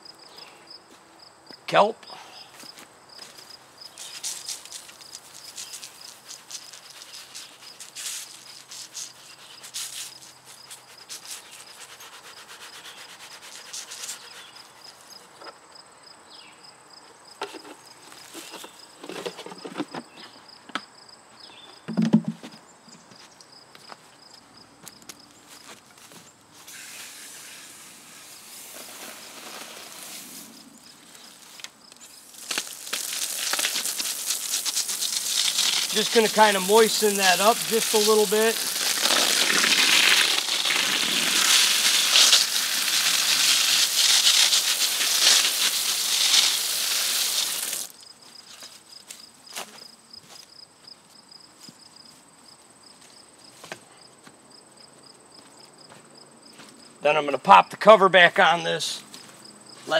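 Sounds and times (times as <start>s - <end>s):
crickets chirping: 0.0s - 59.9s
rustling and scraping by hand: 2.6s - 15.6s, 17.4s - 20.4s, 25.5s - 46.6s
steady hiss: 26.6s - 48.8s.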